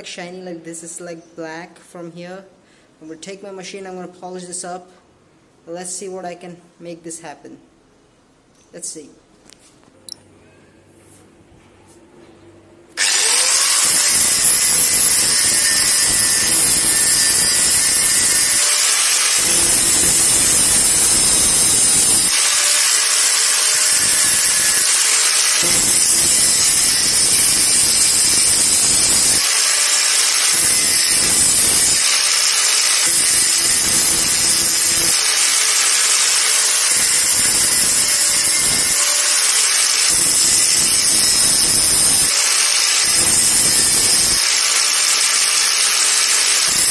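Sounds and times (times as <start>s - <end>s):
angle grinder grinding metal: 13.0s - 46.9s.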